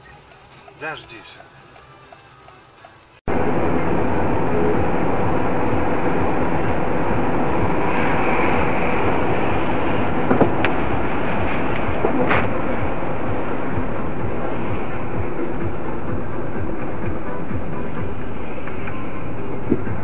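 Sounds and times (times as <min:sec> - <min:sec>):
car road and engine noise: 0:00.0 - 0:20.0.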